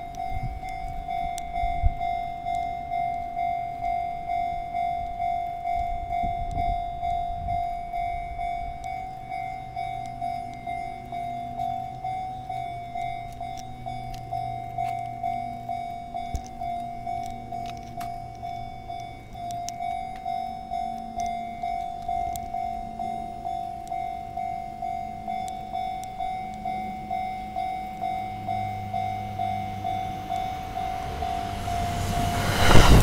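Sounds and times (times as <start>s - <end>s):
level crossing warning bell: 0.0s - 33.0s
low hum: 6.8s - 33.0s.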